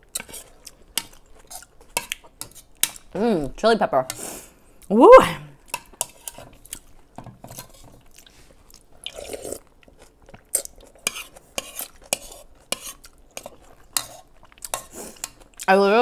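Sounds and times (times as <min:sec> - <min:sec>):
soft eating sounds: 0:00.0 - 0:16.0.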